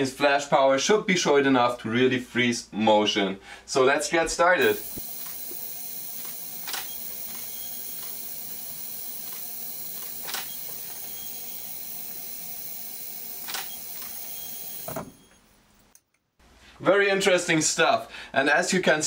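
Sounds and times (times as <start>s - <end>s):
camera shutter clicking: 6.2s - 8.2s, 9.3s - 10.9s, 13.4s - 14.8s.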